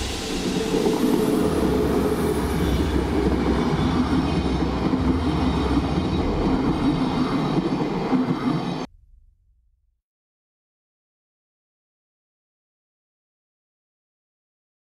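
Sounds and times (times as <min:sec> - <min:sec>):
train passing: 0:00.0 - 0:08.9
wheel-on-rail noise: 0:00.3 - 0:08.9.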